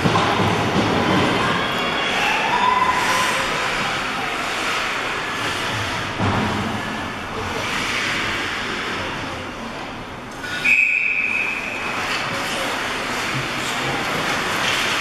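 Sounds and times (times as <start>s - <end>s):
voices from stands: 0.0s - 15.0s
referee whistle blast: 10.6s - 11.8s.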